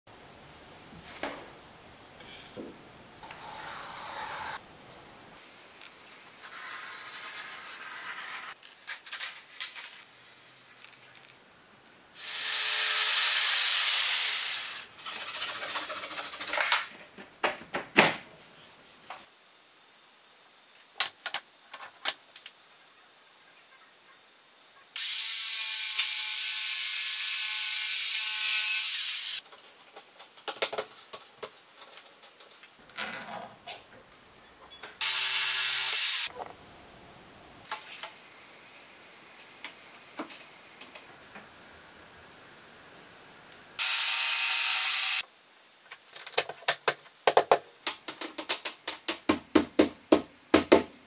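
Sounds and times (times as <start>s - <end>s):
power tool running: 35.0s - 36.3s, 43.8s - 45.2s.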